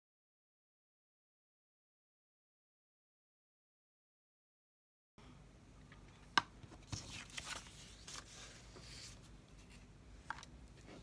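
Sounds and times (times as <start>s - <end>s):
paper rustling and scraping: 6.8s - 9.9s.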